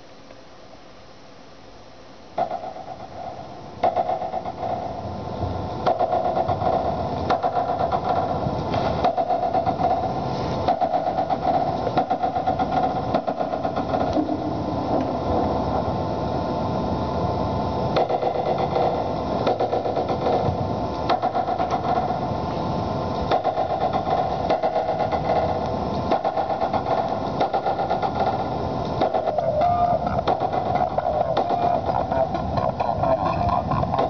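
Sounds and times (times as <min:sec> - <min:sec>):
held hum: 0:02.2 - 0:34.0
dense rattling texture: 0:23.3 - 0:34.0.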